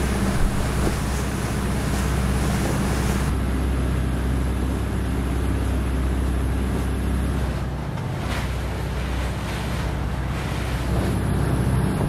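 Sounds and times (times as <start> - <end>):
wind and water hiss: 0.0 - 3.4, 6.6 - 12.0
boat engine running: 0.0 - 12.0.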